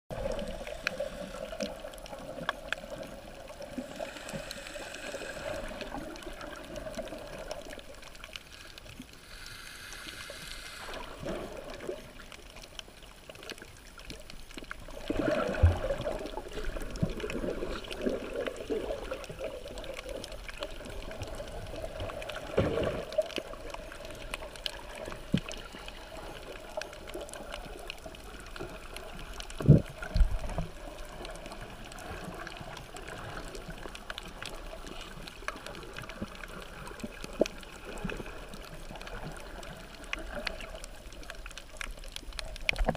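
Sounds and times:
underwater moving water gurgling: 0.1 - 42.9
hissing noise: 9.2 - 11.3.

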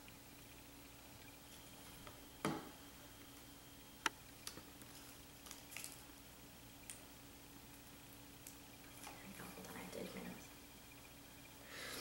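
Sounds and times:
dry leaf crackling: 4.4 - 6.1.

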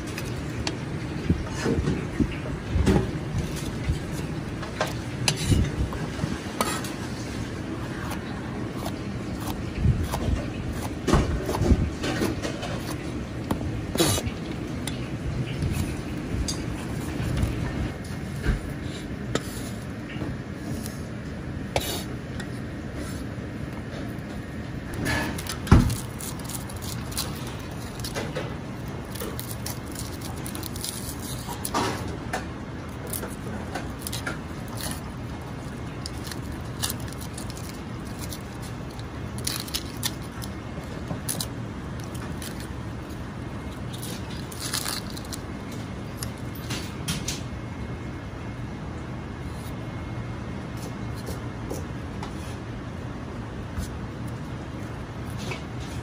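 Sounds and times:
onion skins crackling: 2.2 - 17.7, 24.9 - 47.0.

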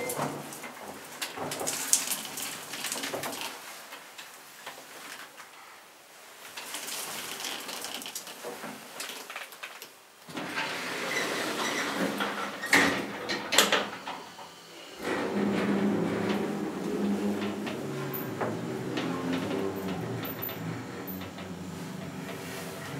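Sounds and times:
elevator running hiss: 10.3 - 22.9
elevator clicks and rattles: 15.0 - 22.9.

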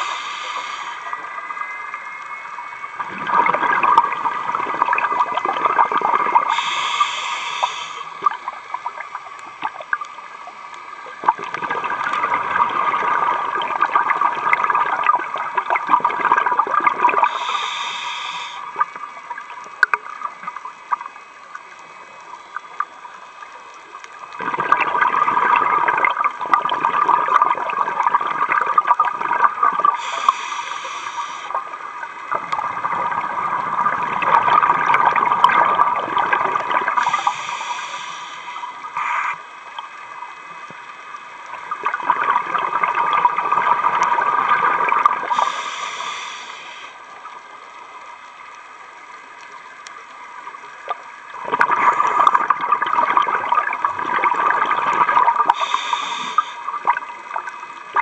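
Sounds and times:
regulator inhalation hiss: 0.0 - 1.8, 6.4 - 8.3, 17.2 - 18.9, 30.0 - 31.6, 37.0 - 39.4, 45.2 - 47.2, 55.4 - 56.8
exhaled bubbles rushing: 2.8 - 6.6, 11.0 - 17.4, 24.3 - 30.1, 31.5 - 37.4, 41.4 - 45.6, 50.8 - 55.8.

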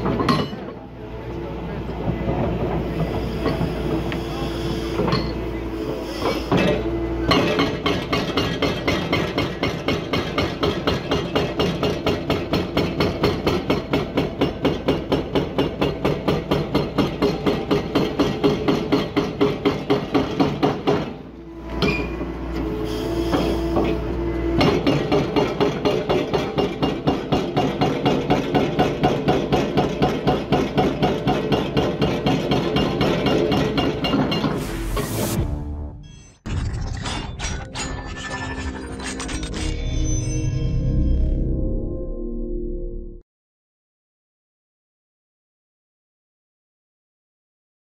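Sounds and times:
excavator engine and hydraulics: 0.0 - 41.6
hydraulic breaker hammering concrete: 6.5 - 21.2, 24.6 - 34.5.

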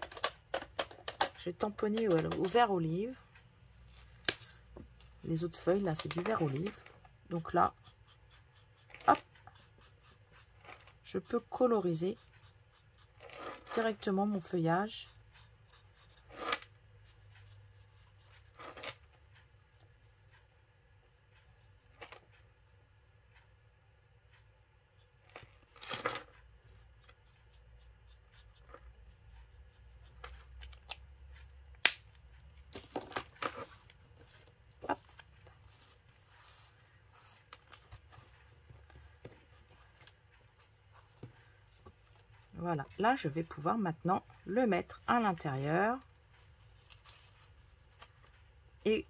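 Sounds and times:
marker tip scratching paper: 7.4 - 19.0, 26.7 - 30.4.

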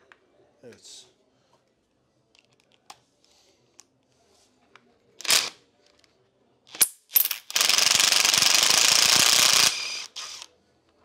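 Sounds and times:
impact driver rattling: 6.7 - 10.4.

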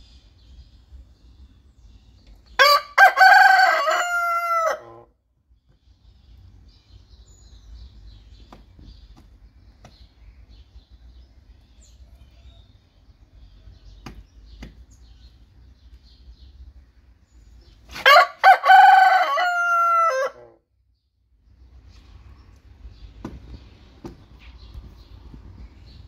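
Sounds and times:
rooster crowing: 2.6 - 5.1, 18.0 - 20.6.

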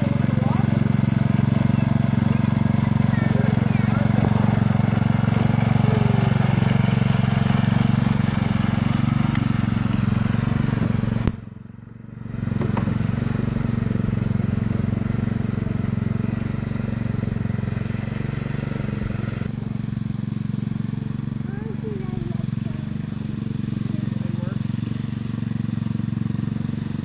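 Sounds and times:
riding lawn mower engine: 0.0 - 27.0.

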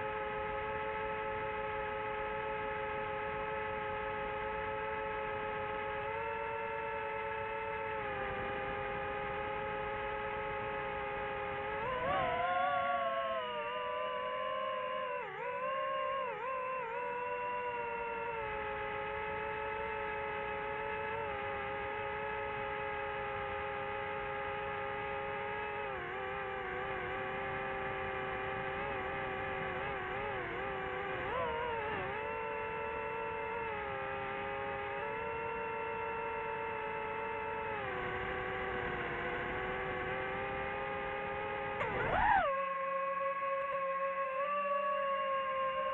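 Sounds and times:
drone propellers whirring: 0.0 - 45.9.

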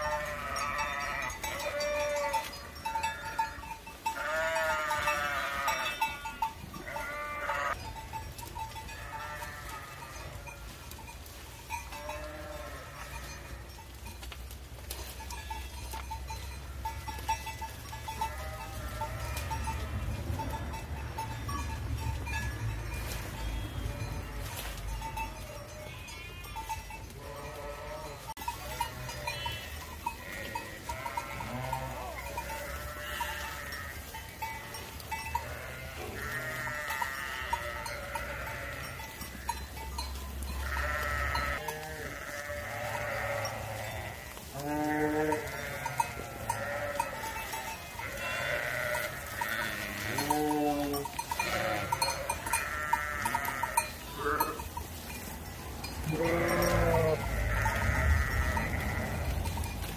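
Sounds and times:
sheep bleating: 0.0 - 7.8, 8.9 - 10.6, 11.9 - 13.7, 18.1 - 20.1, 23.4 - 39.6, 40.6 - 54.7, 56.0 - 59.5.

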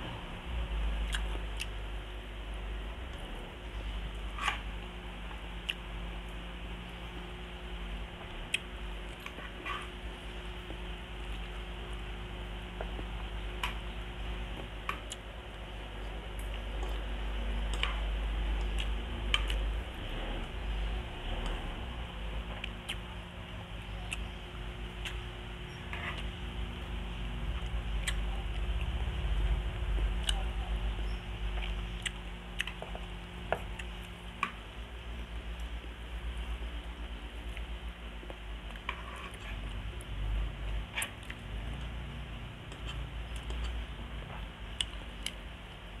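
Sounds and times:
steady low hum: 0.0 - 46.0
person chewing food: 0.9 - 1.9, 3.0 - 6.4, 8.1 - 34.7, 35.4 - 45.5
chewing and wet mouth clicks: 1.0 - 1.8, 5.6 - 5.8, 8.5 - 9.4, 18.6 - 19.7, 22.5 - 23.0, 24.0 - 24.4, 25.0 - 25.3, 27.5 - 29.0, 29.9 - 30.4, 31.6 - 34.6, 42.7 - 43.8, 44.7 - 45.4.

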